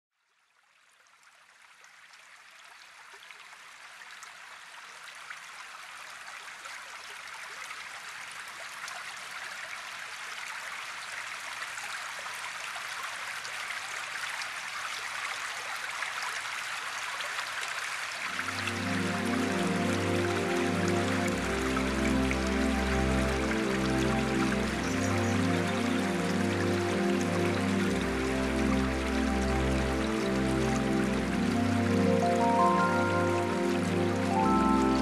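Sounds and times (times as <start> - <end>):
stream water rushing: 1.9 - 35.0.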